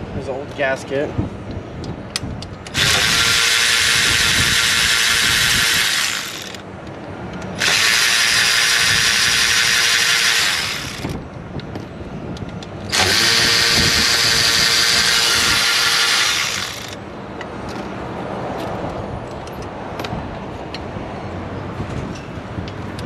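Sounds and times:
cordless electric ratchet running: 2.7 - 6.6, 7.6 - 11.2, 12.9 - 17.0.

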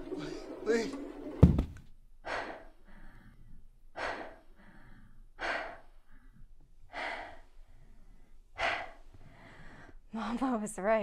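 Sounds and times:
person breathing hard: 2.2 - 10.1.

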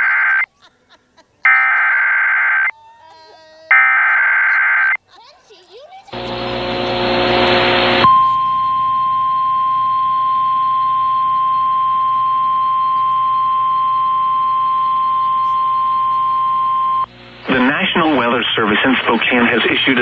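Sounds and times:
steady high alert tone: 1.5 - 2.7, 6.4 - 18.7.

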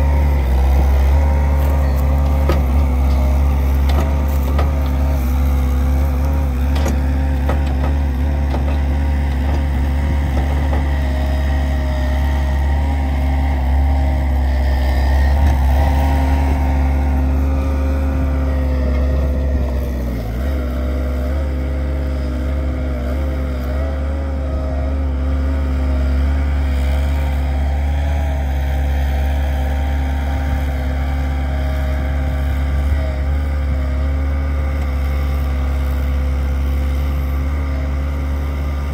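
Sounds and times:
loader diesel engine: 0.0 - 38.9
tractor diesel engine: 0.0 - 38.9.

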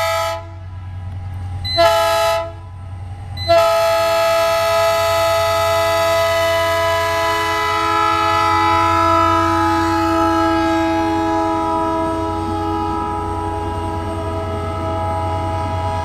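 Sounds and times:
locomotive air horn blast: 0.0 - 0.7, 1.7 - 2.6, 3.4 - 16.0
passing train rumble: 0.0 - 16.0.

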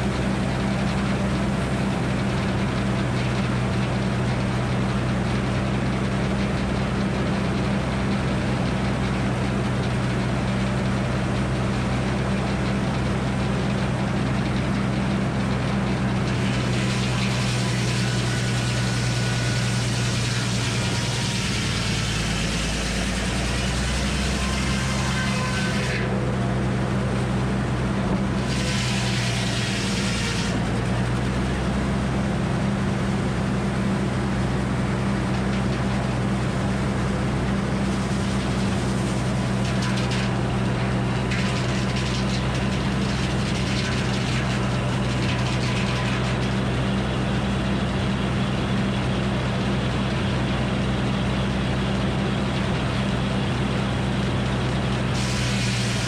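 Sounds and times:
sawmill engine humming: 0.0 - 56.0
saw blade cutting log: 16.2 - 26.3, 28.1 - 32.5, 37.6 - 47.1, 54.7 - 56.0.

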